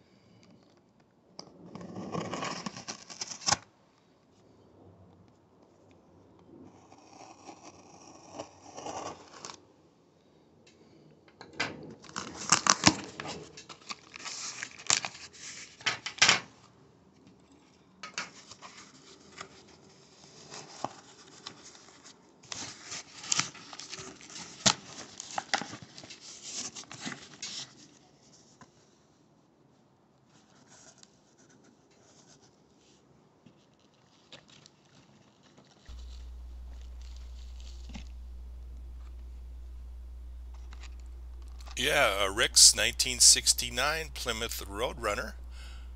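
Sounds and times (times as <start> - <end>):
steady low hum: 35.9 - 45.9.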